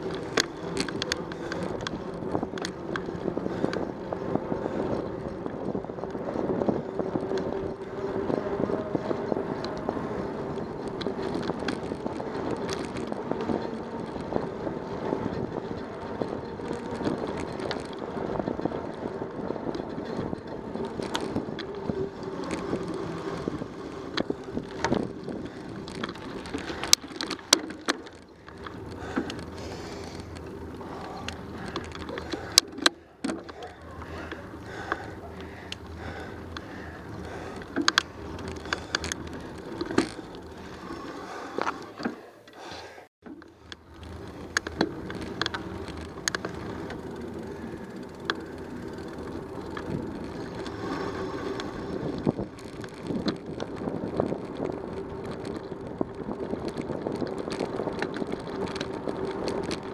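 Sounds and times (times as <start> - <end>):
bicycle rolling on pavement: 0.0 - 59.9
sharp clicks and knocks: 37.5 - 40.6.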